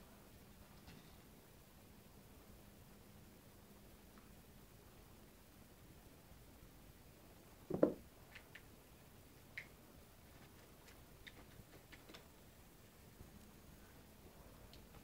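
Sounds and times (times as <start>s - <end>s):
faint light ticks: 14.7s - 15.0s.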